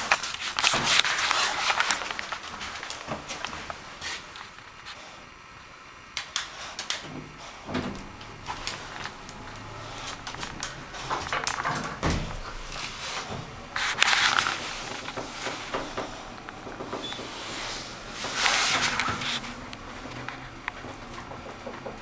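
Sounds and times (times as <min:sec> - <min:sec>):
elevator clicks and rattles: 0:06.2 - 0:22.0.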